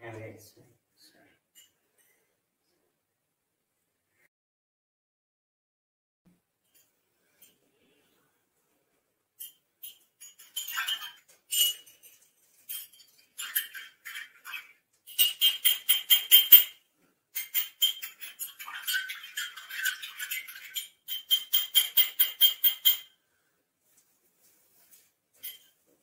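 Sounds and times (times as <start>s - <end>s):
teaspoon clinking in glass: 9.4s - 16.8s, 17.4s - 23.1s.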